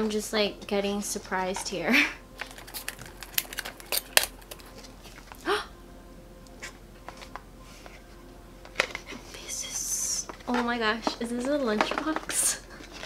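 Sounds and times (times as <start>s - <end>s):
person saying oh: 5.4s - 5.8s.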